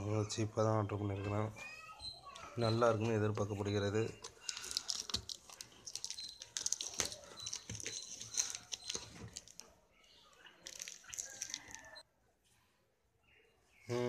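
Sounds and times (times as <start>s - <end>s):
packaging being torn open: 4.3s - 9.6s.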